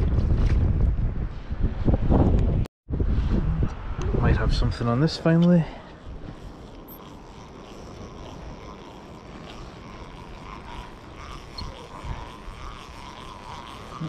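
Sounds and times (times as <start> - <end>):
wind on microphone: 0.0 - 14.0
fishing reel winding: 5.7 - 14.0.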